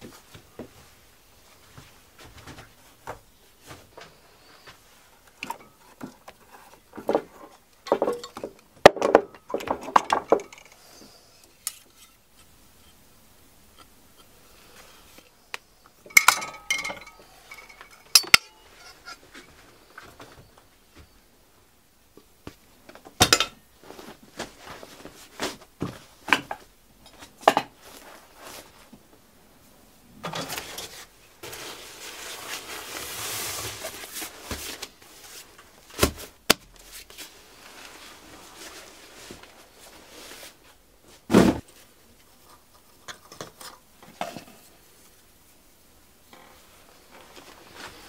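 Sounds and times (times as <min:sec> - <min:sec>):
metal clinks and knocks: 0:16.1 - 0:19.2.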